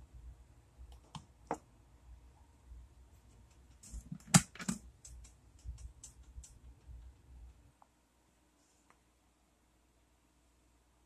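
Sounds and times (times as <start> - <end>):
small ticks: 4.8 - 7.9.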